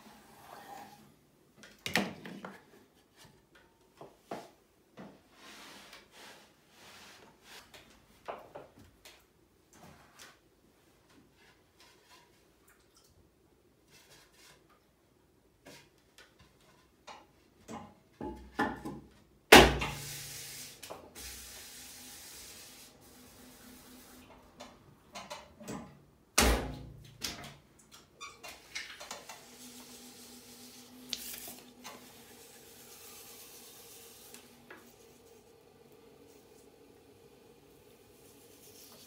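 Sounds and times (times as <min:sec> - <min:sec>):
faint steady hum: 0:29.0 - 0:39.0.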